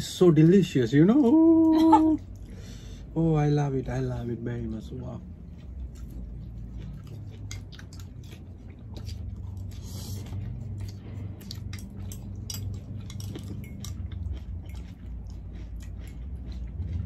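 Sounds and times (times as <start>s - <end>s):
low steady hum: 0.0s - 17.0s
wet chewing and mouth clicks: 4.7s - 17.0s.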